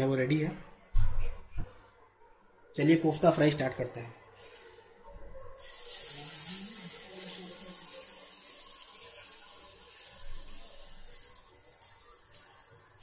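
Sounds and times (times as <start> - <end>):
batter sizzling in hot oil: 5.6 - 13.0.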